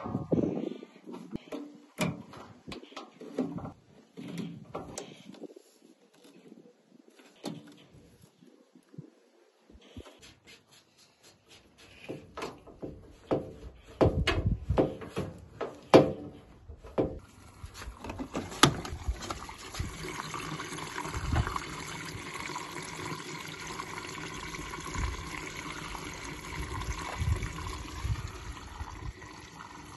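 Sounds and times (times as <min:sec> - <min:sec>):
water rushing into dispenser: 0:17.3 - 0:29.9.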